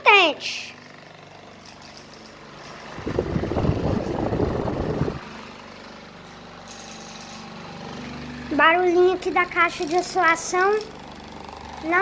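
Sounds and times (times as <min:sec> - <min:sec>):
table fan humming: 0:00.0 - 0:12.0
loud rough rushing noise: 0:02.9 - 0:05.3.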